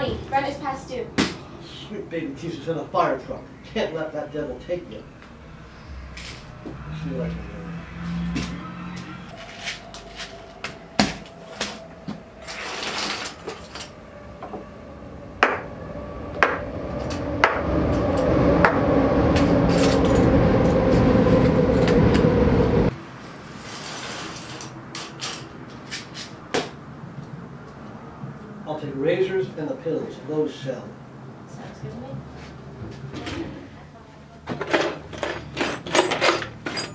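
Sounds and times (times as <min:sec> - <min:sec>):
rushing noise: 0:04.8 - 0:23.8.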